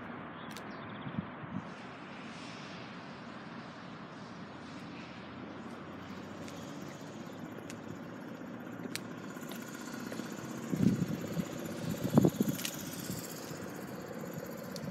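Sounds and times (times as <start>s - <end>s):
car engine idling: 5.6s - 14.9s
small clicks: 12.3s - 13.6s.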